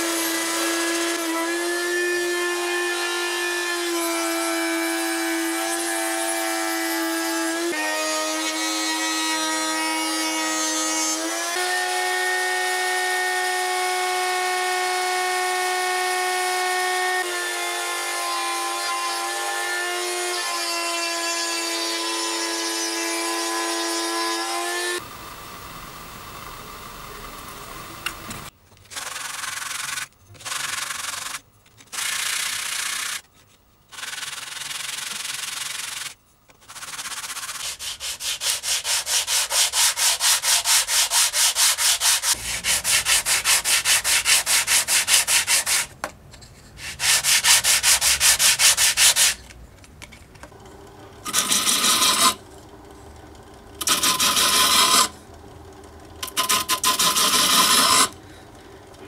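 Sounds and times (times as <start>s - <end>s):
sanding wood by hand: 34.0s - 45.9s, 46.8s - 49.4s.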